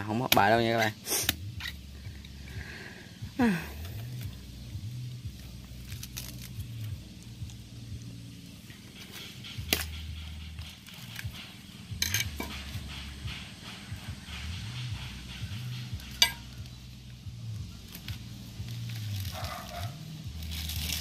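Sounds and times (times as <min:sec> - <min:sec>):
knife chopping coconut husk: 0:00.0 - 0:01.7, 0:09.0 - 0:11.6.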